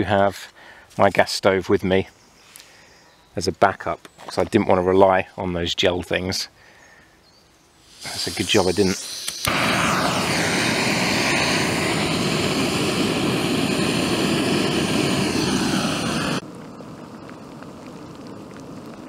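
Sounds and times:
gas stove hissing roar: 7.9 - 16.4
lighter clicking: 9.0 - 10.2.

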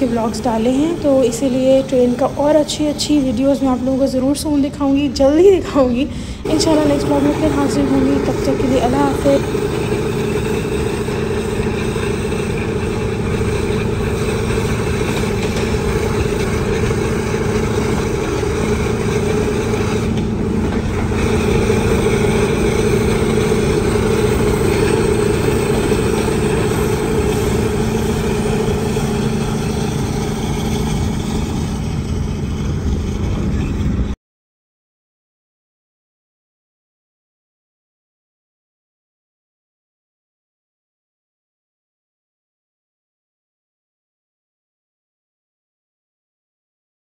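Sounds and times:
low steady hum: 0.0 - 34.2
wind and road noise: 6.1 - 34.2.

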